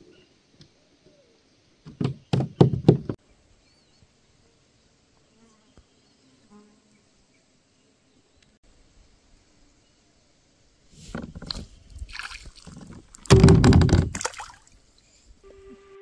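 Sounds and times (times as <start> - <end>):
loud knocks on a kayak: 13.2 - 14.3.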